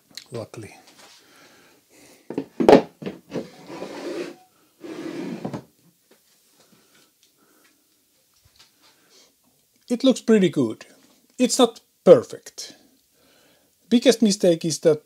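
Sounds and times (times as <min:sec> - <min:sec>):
wood scraping on wood: 0:03.3 - 0:05.6.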